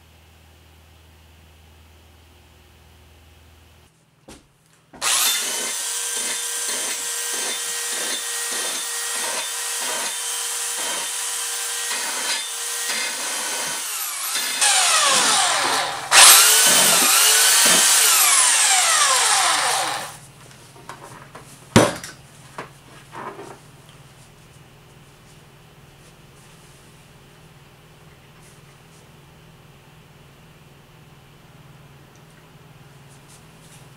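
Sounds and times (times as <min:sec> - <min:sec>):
belt sander grinding metal: 0:05.0 - 0:20.2.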